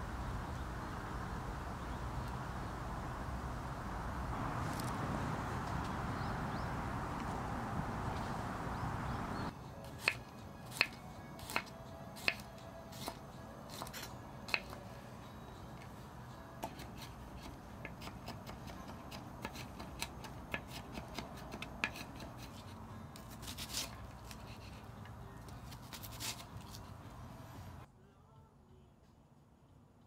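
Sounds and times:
knife chopping onion on wooden board: 10.0 - 14.8, 16.6 - 22.6.

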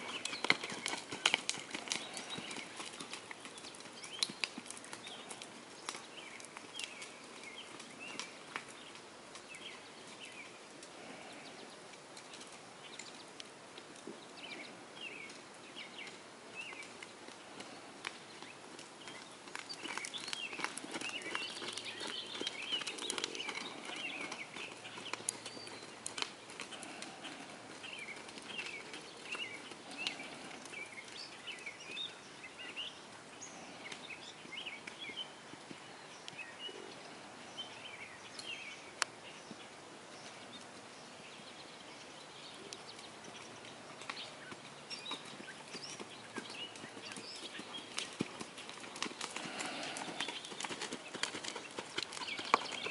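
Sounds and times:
horse hoofbeats on sand: 0.0 - 8.8, 43.2 - 52.9
birds chirping and singing: 0.0 - 11.8, 14.2 - 52.9.

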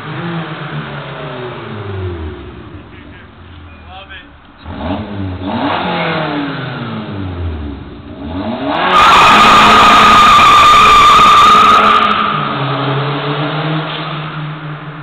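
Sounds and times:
car engine revving: 0.0 - 15.0
tyre squeal: 8.8 - 12.7.

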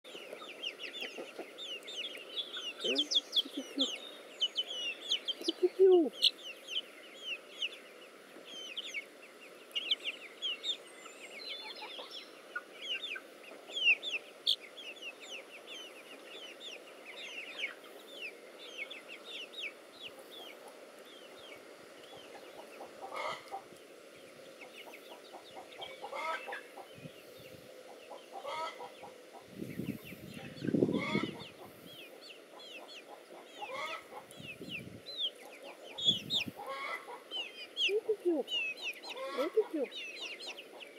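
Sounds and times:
chick peeping: 0.1 - 40.9
chicken sound: 0.1 - 40.9.

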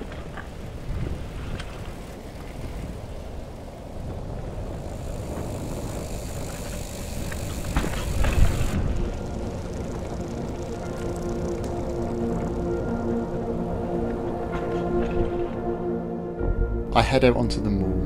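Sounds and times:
bike tyres rumbling on stony trail: 0.0 - 13.1
bike frame rattling: 4.6 - 12.4.

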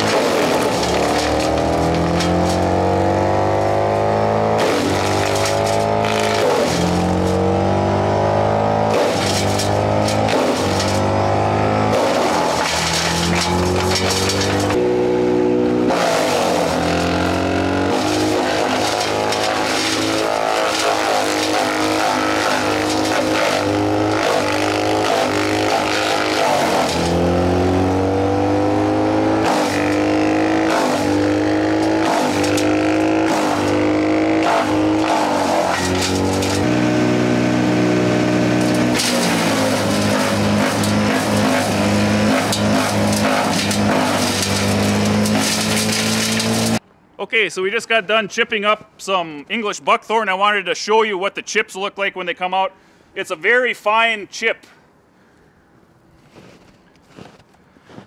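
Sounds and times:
wood cracking and snapping: 0.0 - 2.8, 11.9 - 14.8, 17.8 - 27.2, 38.6 - 41.6, 42.3 - 46.8
brush chipper chewing branches: 0.0 - 46.8
engine running hard: 0.0 - 46.8.

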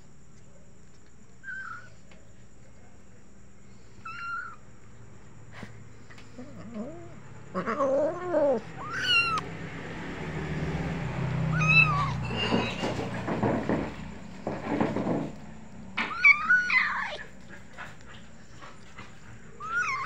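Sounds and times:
cat meowing: 1.4 - 2.0, 4.1 - 4.6, 6.6 - 9.5, 11.5 - 12.9, 16.0 - 17.3, 19.6 - 20.0.

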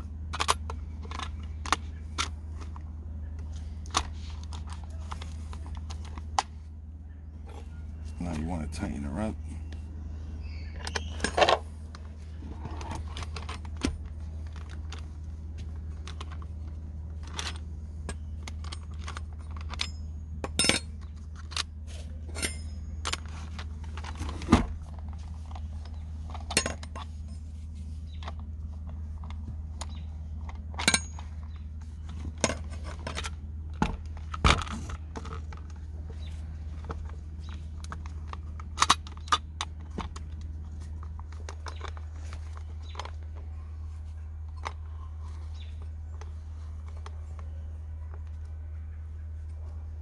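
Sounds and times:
steady low hum: 0.0 - 50.0
metallic clicks and clinks: 30.7 - 31.4.

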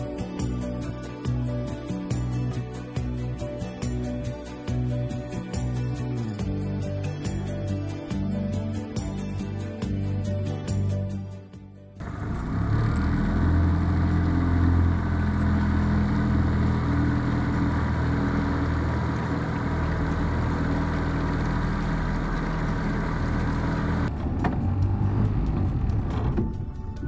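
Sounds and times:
outboard motor running: 12.0 - 26.9.

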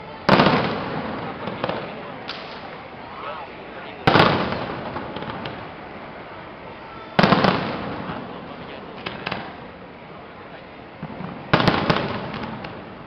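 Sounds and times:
firework booms echoing: 0.3 - 2.6, 4.1 - 5.7, 7.2 - 8.4, 11.0 - 12.9
faint firework pops: 0.3 - 2.8, 4.1 - 5.7, 9.0 - 9.6, 11.0 - 12.9.

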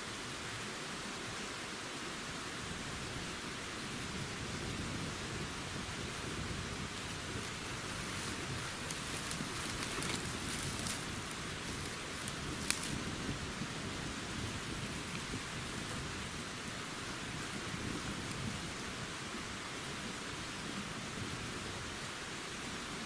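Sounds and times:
steady rushing hiss: 0.0 - 23.0
campfire crackling and popping: 6.2 - 18.6.

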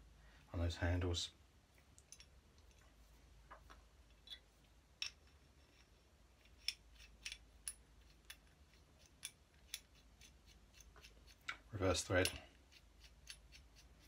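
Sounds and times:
small metal parts clicking: 5.0 - 11.6.

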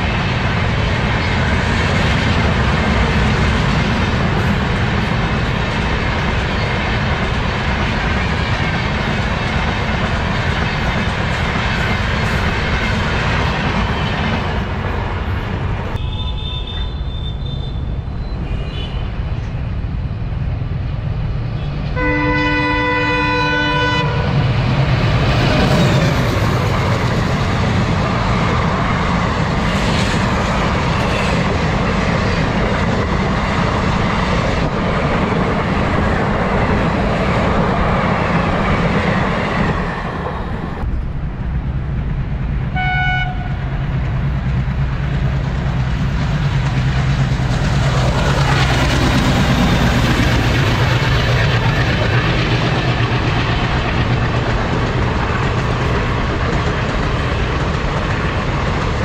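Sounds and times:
deep locomotive engine rumble: 0.0 - 59.0
train coaches rushing past: 0.0 - 59.0
diesel locomotive horn toot: 15.9 - 19.2, 21.9 - 24.4, 30.9 - 31.5, 42.7 - 43.8
train horn: 16.0 - 19.1, 22.0 - 24.3, 42.7 - 43.8.

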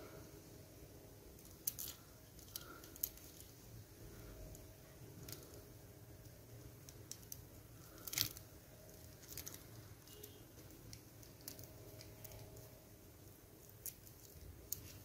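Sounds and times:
beads clicking and rustling: 1.3 - 15.0.

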